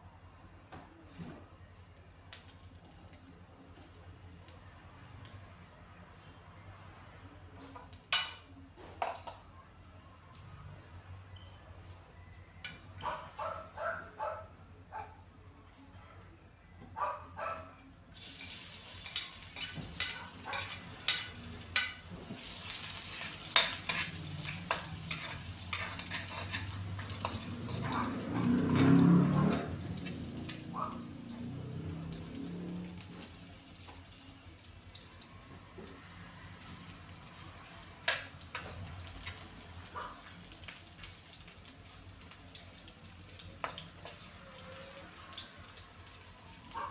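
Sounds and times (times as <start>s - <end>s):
garlic sizzling in hot oil: 18.1s - 46.9s
metal spatula scraping wok: 18.2s - 30.2s.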